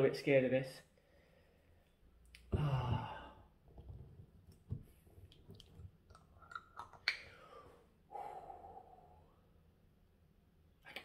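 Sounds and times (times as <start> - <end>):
person groaning: 2.5 - 3.3.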